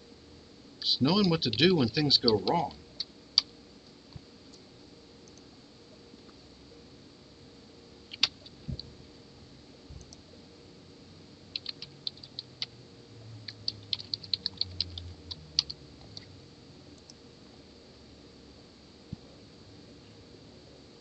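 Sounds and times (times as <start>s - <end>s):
typing on keyboard: 1.2s - 3.5s, 8.1s - 8.4s, 11.5s - 12.7s, 13.4s - 16.3s.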